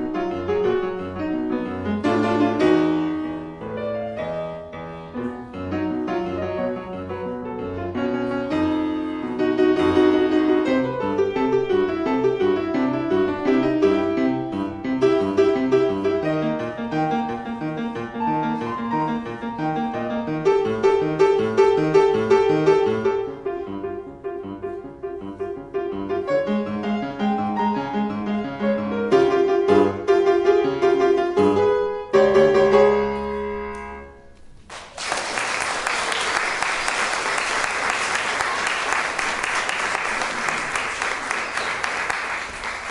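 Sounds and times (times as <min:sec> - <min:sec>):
solo piano piece: 0:00.0 - 0:34.7
audience applause: 0:34.7 - 0:42.9.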